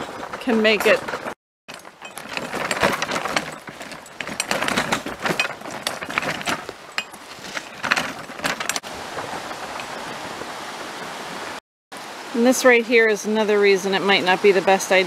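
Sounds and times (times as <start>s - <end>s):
wagon rattling over gravel: 0.0s - 10.6s.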